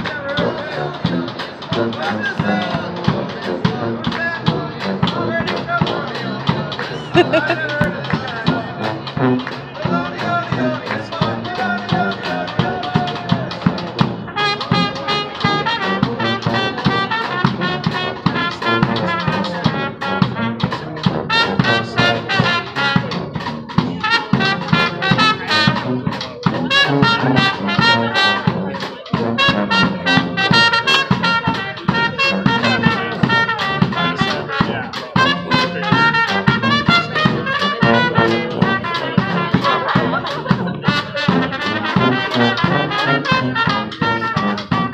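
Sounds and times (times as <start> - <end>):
bass drum: 0.0 - 44.9
low brass horn: 0.0 - 44.9
snare drum: 0.0 - 44.9
trumpet: 0.0 - 44.9.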